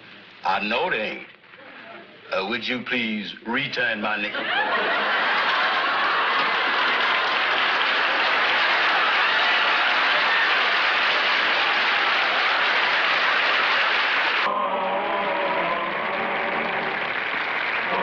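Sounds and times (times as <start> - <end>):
audience applause: 4.5 - 18.0.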